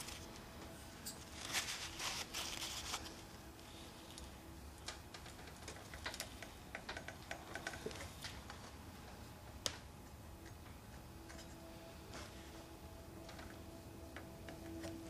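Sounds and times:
faint small clicks and ticks: 4.1 - 8.7.

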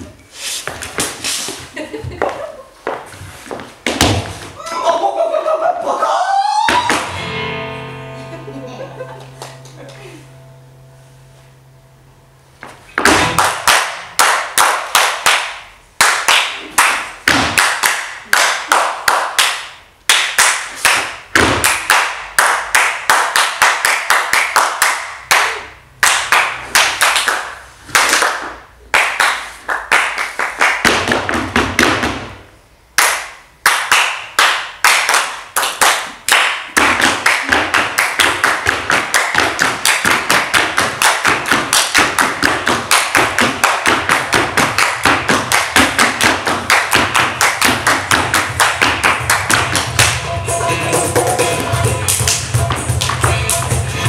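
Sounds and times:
foot taps on wooden stage: 12.6 - 13.6
heavy thumps: 12.6 - 13.7
rhythmic hand claps: 13.0 - 32.3, 33.0 - 54.0.

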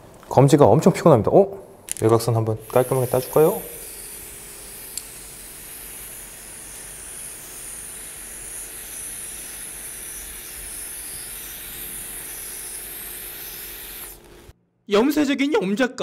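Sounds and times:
spray paint can hissing: 2.6 - 14.5.

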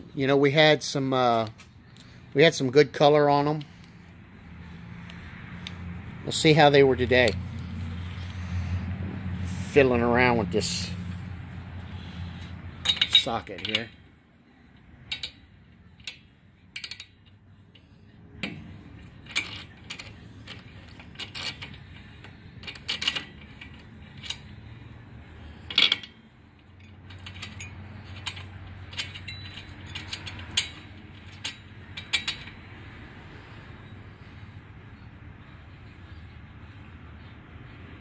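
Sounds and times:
metallic socket clicks: 14.8 - 17.4.

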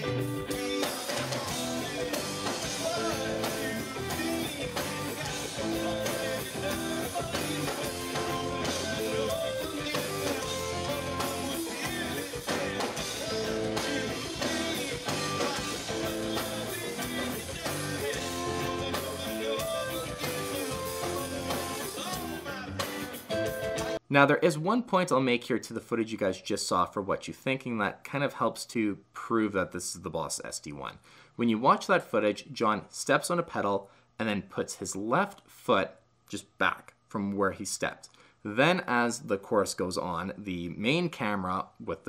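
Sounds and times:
overdriven electric guitar: 0.0 - 24.0
person singing: 0.0 - 24.0
drums: 0.0 - 24.1.

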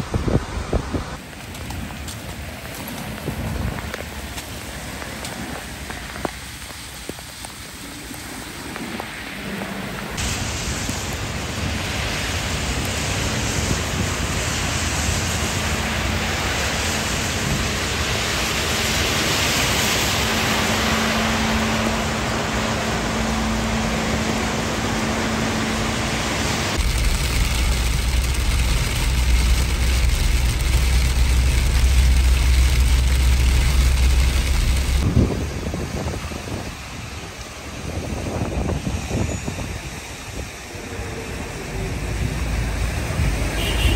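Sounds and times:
cars passing on wet road: 0.0 - 43.9
heavy rain falling: 0.0 - 43.9
rain on car glass: 1.2 - 18.2, 26.6 - 35.2
low rumble: 9.5 - 43.5.

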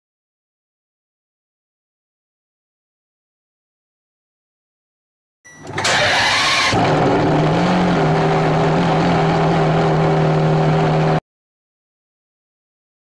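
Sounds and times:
car engine starting and idling: 5.5 - 11.2.

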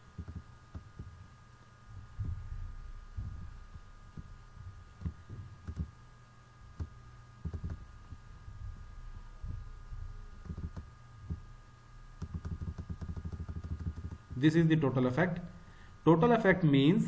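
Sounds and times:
steady hum: 0.0 - 17.0
computer mouse clicks: 5.0 - 5.9, 6.8 - 7.8, 10.4 - 11.4, 12.2 - 14.3.

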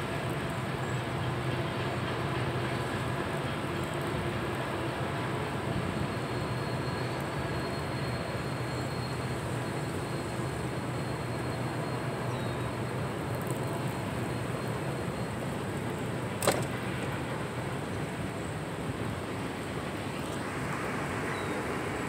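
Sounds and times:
train wheels rumbling on rail: 0.0 - 22.0
sharp knock: 16.4 - 16.7.

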